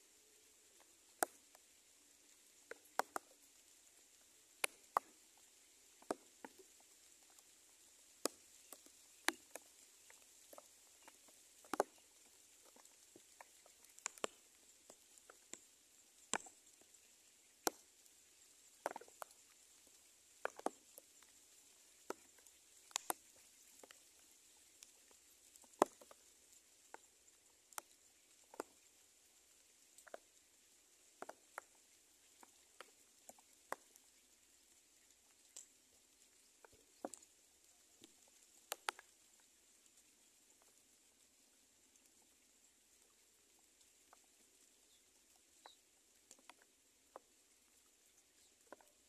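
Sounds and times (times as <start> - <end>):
faint steady hiss: 0.0 - 49.0
sharp little ticks and taps: 0.8 - 1.6, 2.7 - 3.4, 4.6 - 7.5, 8.2 - 17.0, 17.6 - 18.1, 18.7 - 21.3, 22.0 - 26.2, 26.9 - 27.1, 27.7 - 28.9, 30.0 - 30.3, 31.2 - 34.1, 38.0 - 39.1, 45.6 - 47.3.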